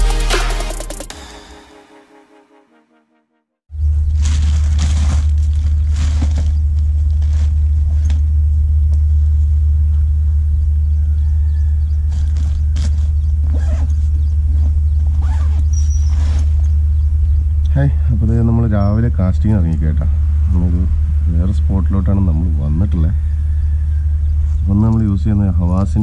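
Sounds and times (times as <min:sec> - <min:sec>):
loud low rumble: 0:03.7 - 0:26.0
bags rustling and clicking: 0:03.8 - 0:08.6, 0:12.0 - 0:16.8.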